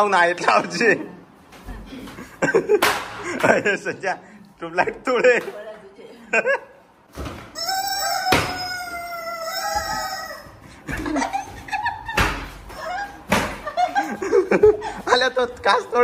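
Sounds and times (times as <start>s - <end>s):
rubber chicken toy squealing: 7.5s - 10.6s.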